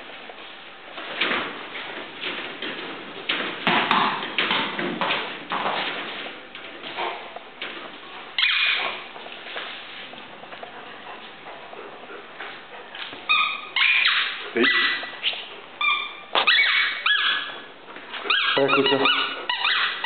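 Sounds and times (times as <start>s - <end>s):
quiet scuffling: 0.0s - 3.7s, 4.3s - 13.8s, 14.4s - 18.4s
dog whining and yelping: 8.4s - 9.0s, 13.3s - 15.2s, 15.8s - 17.7s, 18.3s - 20.0s.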